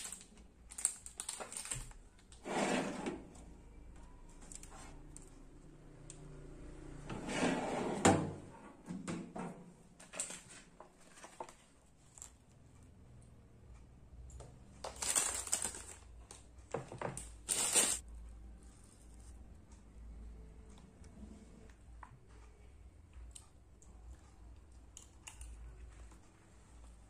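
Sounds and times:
foil trays rustling: 0:14.9 - 0:16.0, 0:17.4 - 0:18.0.

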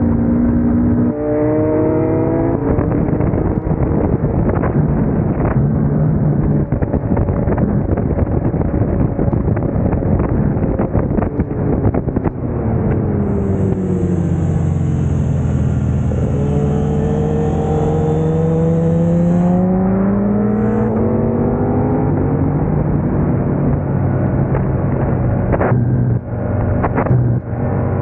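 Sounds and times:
wind buffeting microphone: 0:00.9 - 0:28.0
motorcycle engine: 0:10.7 - 0:28.0.

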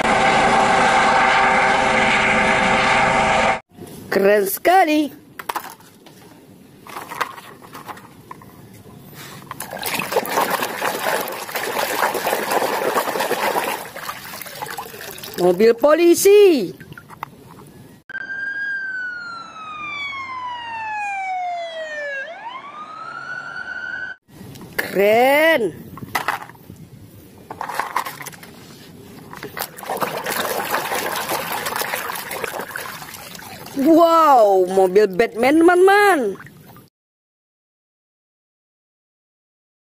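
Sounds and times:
plastic toys clattering: 0:05.4 - 0:05.9, 0:06.8 - 0:08.5, 0:26.1 - 0:26.6, 0:27.5 - 0:28.6
hand splashing in basin of water: 0:09.6 - 0:15.6, 0:29.3 - 0:33.9.

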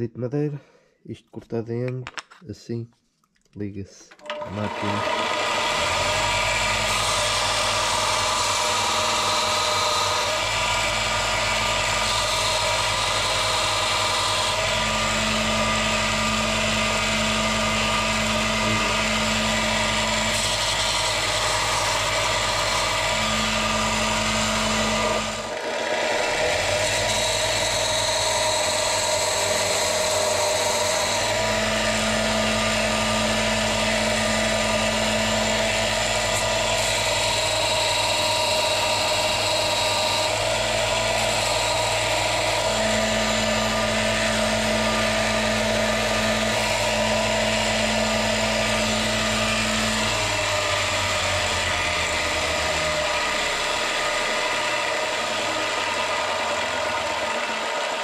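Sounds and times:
grinder motor humming: 0:04.2 - 0:58.0
steel rasping on sanding belt: 0:06.8 - 0:25.5, 0:26.3 - 0:52.9.

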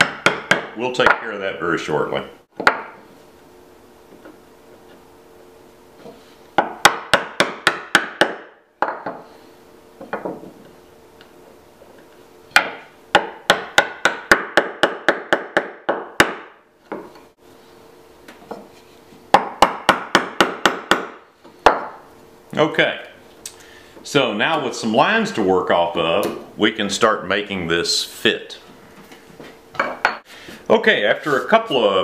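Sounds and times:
chisel struck into wood: 0:00.0 - 0:00.8, 0:02.6 - 0:03.0, 0:06.6 - 0:09.2, 0:12.5 - 0:17.0, 0:19.3 - 0:22.0.

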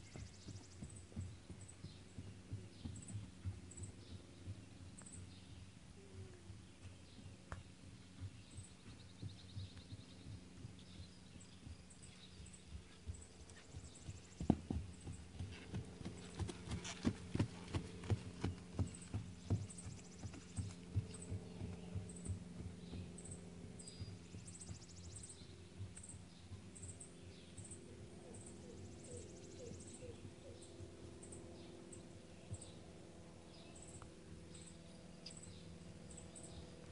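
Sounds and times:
horse hoofbeats on grass: 0:00.0 - 0:27.0.

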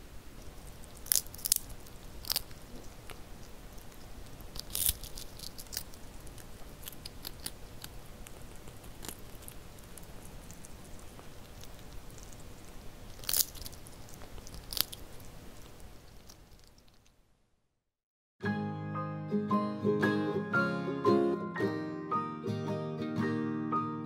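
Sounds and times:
kitten crunching fish: 0:00.2 - 0:17.2
soft chewing clicks: 0:00.3 - 0:17.2.

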